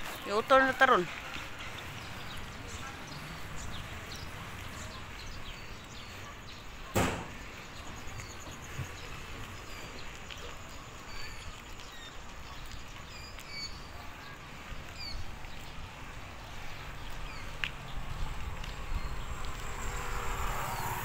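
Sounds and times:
bicycle road noise: 0.0s - 21.0s
birds chirping: 0.0s - 21.0s
wind rumble: 14.4s - 21.0s.

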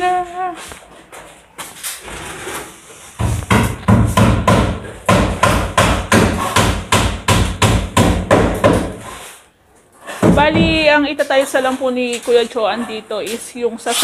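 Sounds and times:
rapid hammering: 3.2s - 9.1s.

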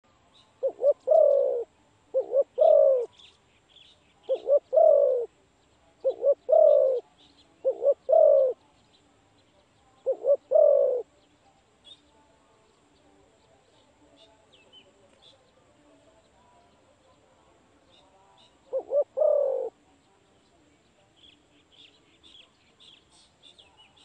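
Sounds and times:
small birds chirping: 0.1s - 24.0s
dove cooing: 0.6s - 3.2s, 4.2s - 5.3s, 6.0s - 8.6s, 10.0s - 11.1s, 18.7s - 19.8s.

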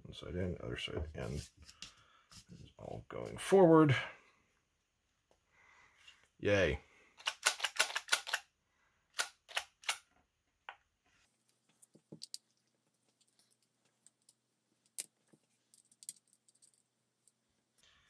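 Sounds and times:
plastic parts clicking: 7.2s - 8.4s.

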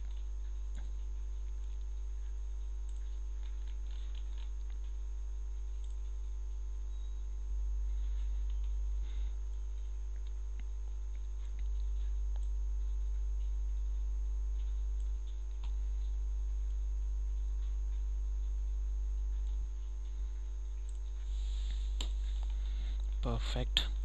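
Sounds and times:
electrical mains hum: 0.0s - 24.0s
computer mouse clicks: 2.8s - 5.0s, 5.7s - 6.3s, 19.4s - 23.2s.

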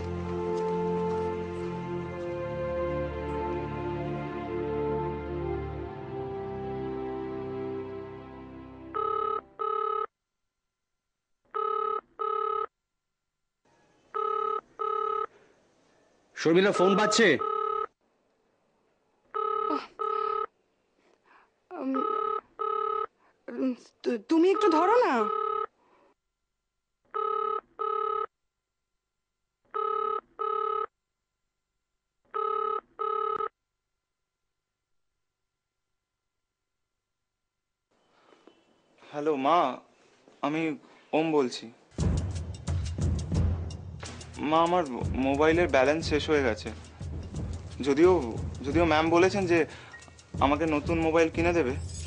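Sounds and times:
background score music: 0.0s - 9.6s, 41.9s - 52.0s
telephone ringing: 8.9s - 10.1s, 11.6s - 12.7s, 14.2s - 15.3s, 16.6s - 18.0s, 19.3s - 20.5s, 21.9s - 23.1s, 24.4s - 25.7s, 27.1s - 28.3s, 29.8s - 30.9s, 32.4s - 33.5s.

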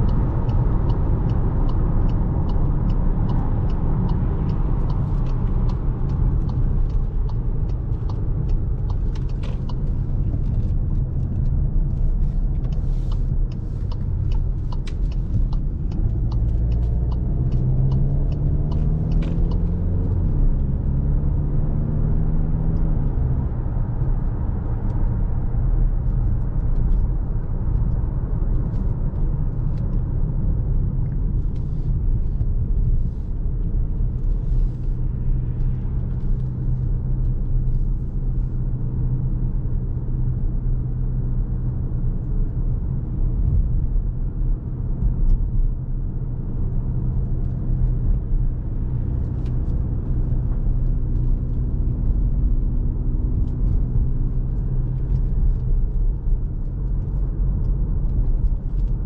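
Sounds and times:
light sharp ticks: 0.0s - 20.6s, 22.8s - 40.2s
diesel engine and tyre rumble: 0.0s - 59.0s.

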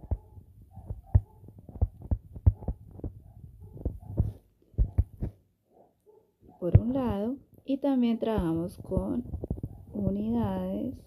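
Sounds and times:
stylus tapping on tablet screen: 0.0s - 3.2s, 3.8s - 5.4s, 6.6s - 7.4s, 8.3s - 10.9s.

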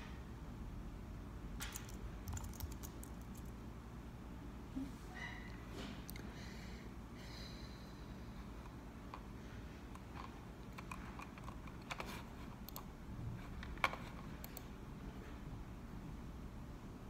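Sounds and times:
computer keyboard key clicks: 1.6s - 3.4s.

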